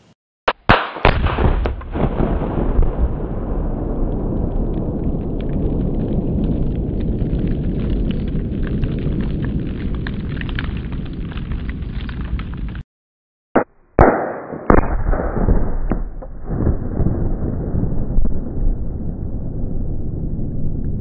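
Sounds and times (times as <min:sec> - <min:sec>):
rifle shot and explosion bangs: 0:00.7 - 0:06.0, 0:13.6 - 0:19.0
fire crackling: 0:00.7 - 0:12.8
low roar of fireball: 0:01.8 - 0:12.8, 0:15.6 - 0:21.0.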